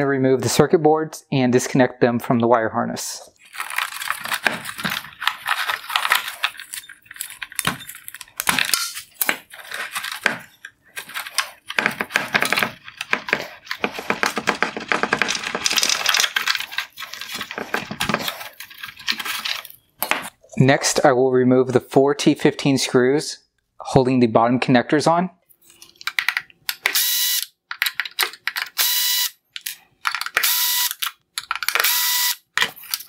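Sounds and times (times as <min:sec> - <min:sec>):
plastic clicks and rattles: 0:03.6 - 0:19.7, 0:25.8 - 0:27.0, 0:27.7 - 0:28.8, 0:29.5 - 0:31.9.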